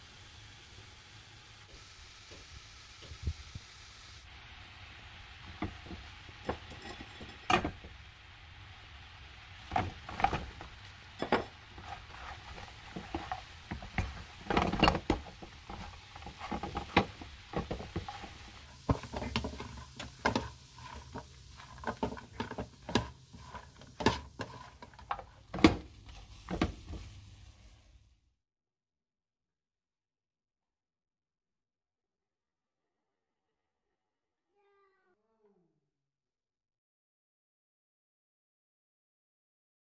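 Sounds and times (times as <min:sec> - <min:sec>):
utensil scraping cooking pan: 0:04.9 - 0:08.0, 0:09.2 - 0:28.0.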